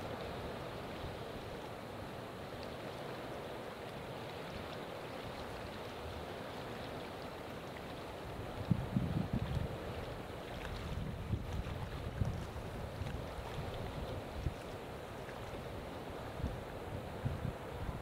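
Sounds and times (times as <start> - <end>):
river water flowing: 0.0 - 18.0
wind buffeting microphone: 8.4 - 14.8, 15.6 - 18.0.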